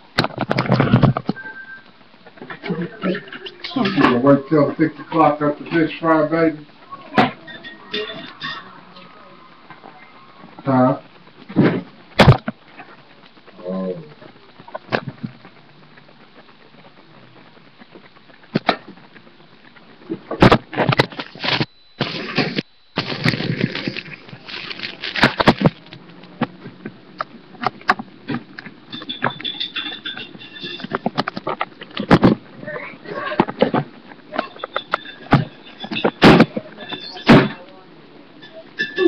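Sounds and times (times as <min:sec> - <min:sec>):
webcam being handled: 0:20.9 - 0:26.0.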